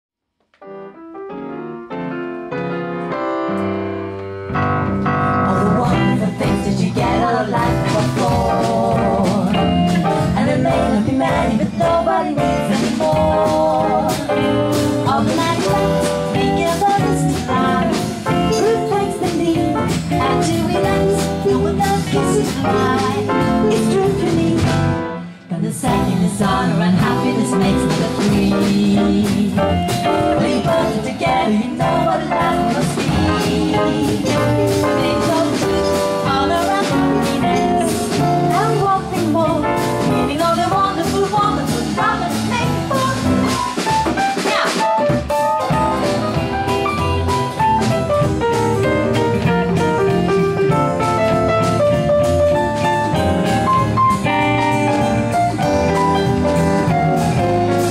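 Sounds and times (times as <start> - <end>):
small jazz band playing: 0.5 - 57.9
two women singing: 5.2 - 43.8.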